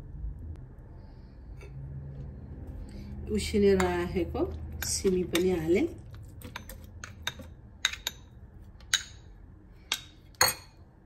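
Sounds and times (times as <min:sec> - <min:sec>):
metal spoon tapping bowl and jar: 0:03.7 - 0:05.8, 0:06.4 - 0:10.8.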